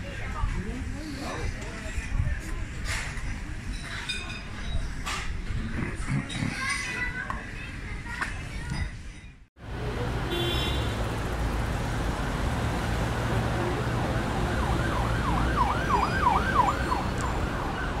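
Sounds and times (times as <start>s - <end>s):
siren yelping: 13.9s - 18.0s.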